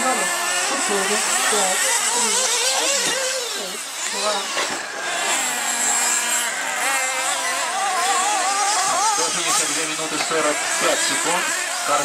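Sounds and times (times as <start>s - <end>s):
rc car engines whining: 0.0s - 12.0s.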